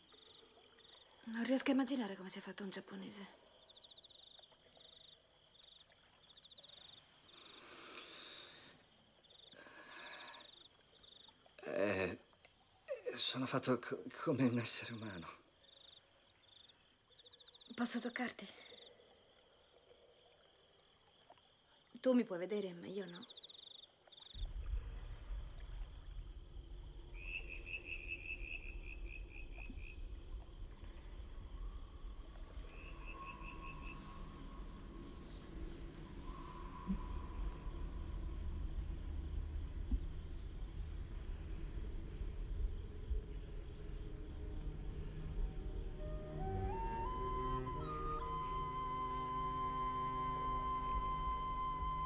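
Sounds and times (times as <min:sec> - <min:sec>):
crickets chirping: 0:00.0 - 0:52.0
faint high drone: 0:24.4 - 0:52.0
hissing noise: 0:24.4 - 0:52.0
low rumble: 0:24.4 - 0:52.0.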